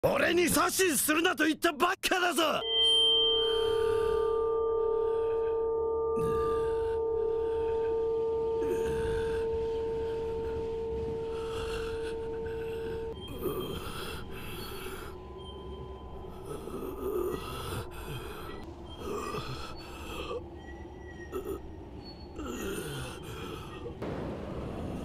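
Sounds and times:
ragged gasping breaths: 16.3s - 20.5s.

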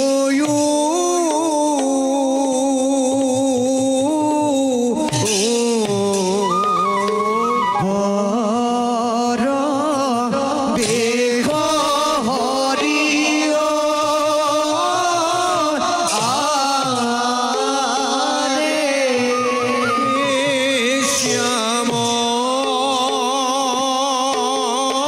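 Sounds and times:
barrel drum: 0.0s - 8.1s, 9.9s - 25.0s
bright percussive accents: 10.8s - 25.0s
wavering melody over drone: 12.2s - 25.0s.

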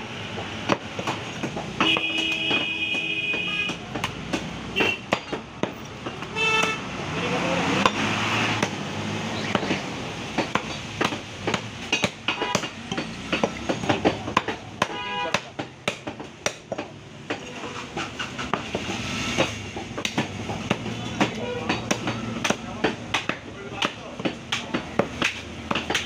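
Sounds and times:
cleaver chopping on wooden block: 0.6s - 6.8s, 7.8s - 19.0s, 19.8s - 26.0s.

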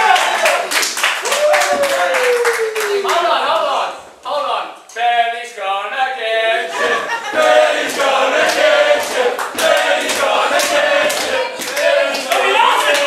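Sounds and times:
crowd chanting in unison: 6.5s - 13.0s
hand clapping: 7.4s - 13.0s.

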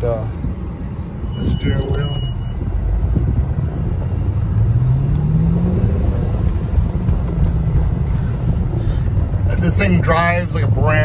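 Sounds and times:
car engine accelerating: 0.0s - 11.0s.

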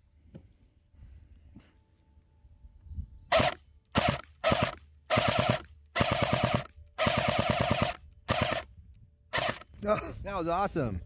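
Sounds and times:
bb rifle firing bursts: 3.3s - 8.7s, 9.3s - 9.7s.

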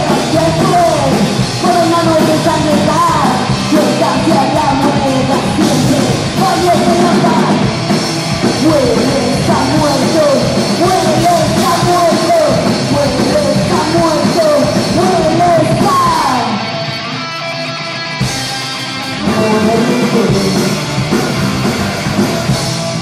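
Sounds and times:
woman singing: 0.0s - 7.7s, 8.6s - 16.6s
live rock band playing: 0.0s - 23.0s.

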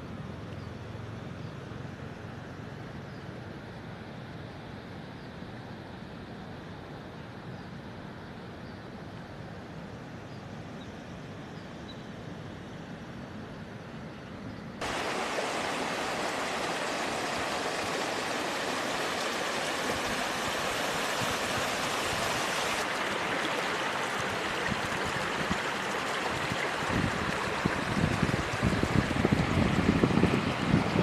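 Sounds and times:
wind buffeting microphone: 14.8s - 22.8s, 24.1s - 31.0s
water rushing over rocks: 14.8s - 31.0s.

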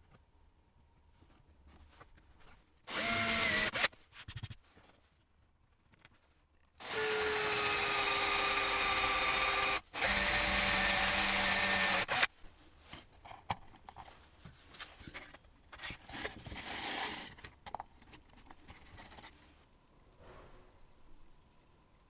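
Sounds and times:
electric drill boring into wood: 2.9s - 3.9s, 6.8s - 12.3s.

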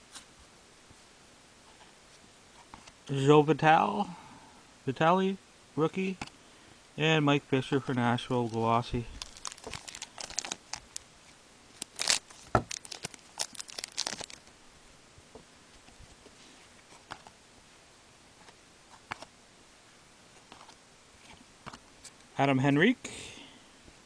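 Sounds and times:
plastic wrapper crackling: 8.4s - 11.0s, 11.7s - 14.5s.

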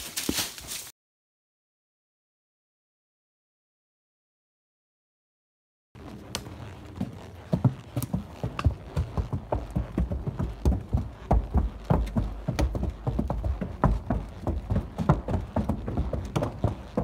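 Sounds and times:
hooves on wooden bridge: 6.0s - 17.0s.

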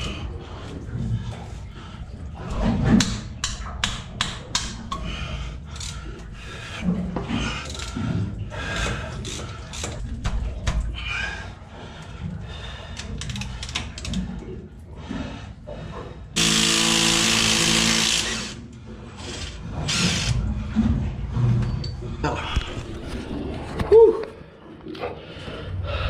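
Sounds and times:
power drill whirring: 16.4s - 18.6s, 19.2s - 20.4s.

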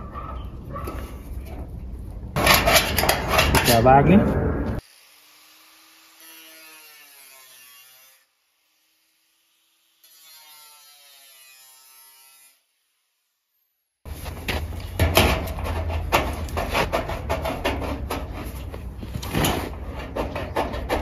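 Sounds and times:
sheet metal being cut: 2.4s - 4.0s, 4.8s - 8.4s, 9.1s - 12.7s, 15.0s - 21.0s
low rumble: 3.6s - 4.8s.

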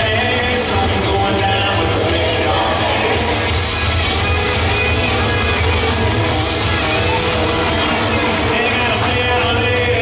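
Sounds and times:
person singing: 0.0s - 3.6s, 8.3s - 10.0s
rock and roll music: 0.0s - 10.0s.

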